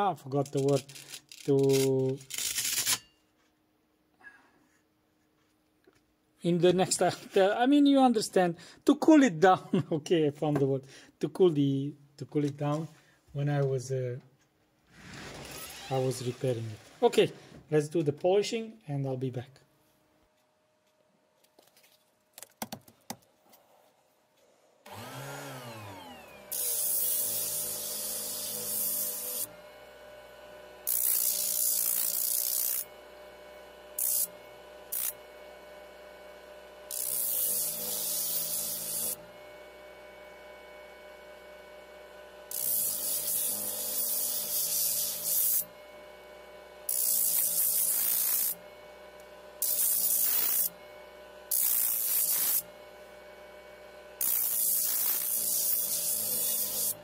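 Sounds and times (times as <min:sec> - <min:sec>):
sander motor humming: 0:24.9 - 0:57.0
grit hissing on steel blade: 0:51.6 - 0:52.6.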